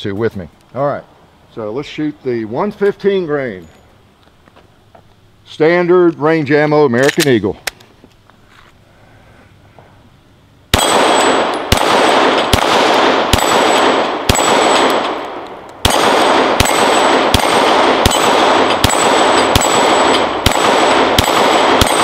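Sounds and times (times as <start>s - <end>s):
pistol shots: 10.7s - 22.0s.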